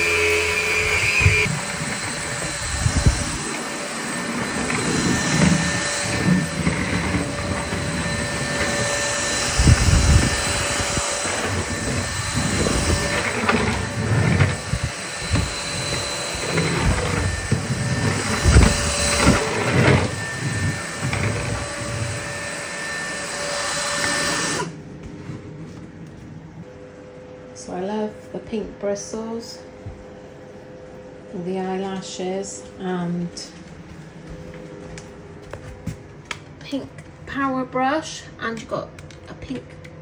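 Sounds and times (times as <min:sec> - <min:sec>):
vacuum cleaner motor whine: 0:00.0 - 0:27.8.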